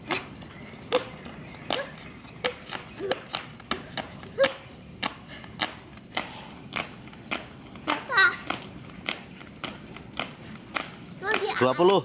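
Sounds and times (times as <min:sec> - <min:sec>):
jump rope slapping asphalt: 0:00.0 - 0:12.0.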